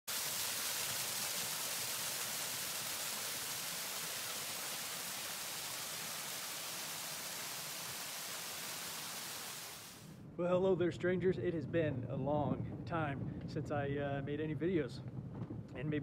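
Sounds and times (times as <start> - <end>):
waterfall rushing over rocks: 0.1 - 10.1.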